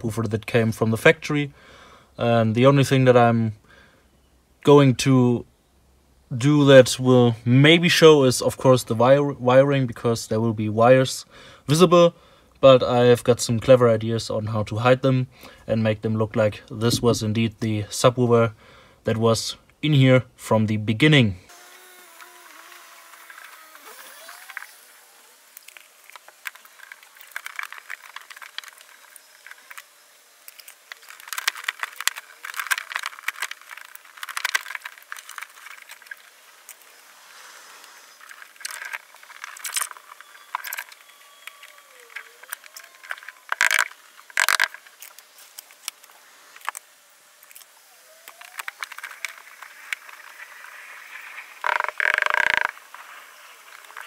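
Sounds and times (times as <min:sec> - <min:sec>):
foil mats crinkling and scraping: 0:23.3 - 0:54.0.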